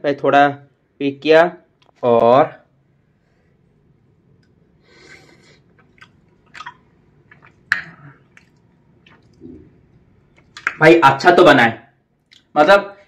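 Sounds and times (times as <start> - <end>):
person chewing food: 4.4 - 10.8, 12.2 - 12.5
mouth clicks and smacks: 4.4 - 10.9, 12.2 - 12.6.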